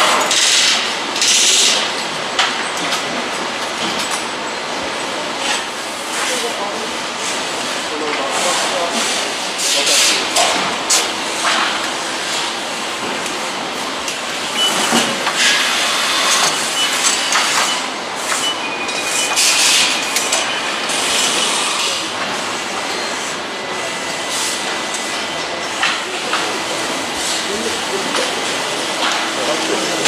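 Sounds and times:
factory machinery din: 0:00.0 - 0:30.0
clicks and clanks: 0:16.2 - 0:20.6, 0:29.0 - 0:30.0.

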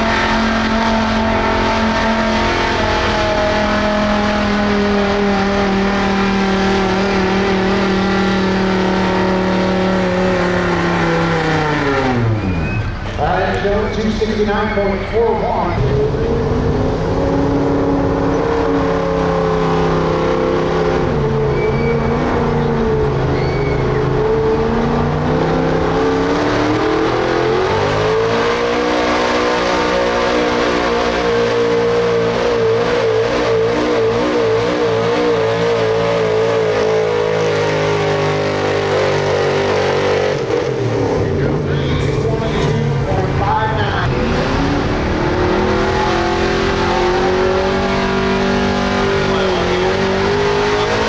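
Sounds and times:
truck engine running under load: 0:00.0 - 0:28.2.

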